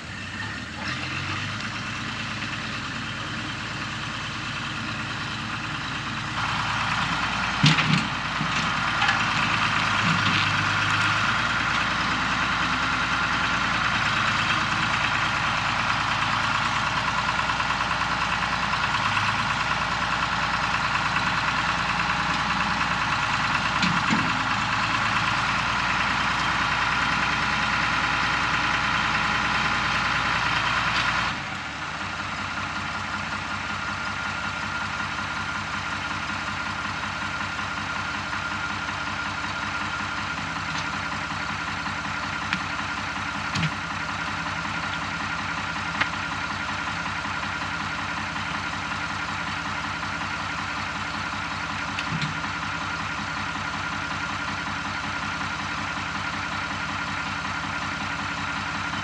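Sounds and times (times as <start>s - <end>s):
tractor engine idling: 0.0s - 59.0s.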